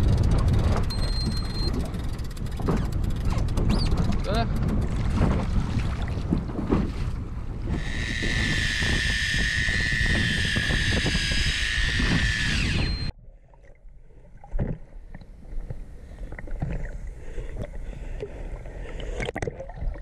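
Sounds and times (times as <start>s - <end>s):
wind noise: 0.0s - 13.1s
motor whining at high speed: 7.8s - 13.1s.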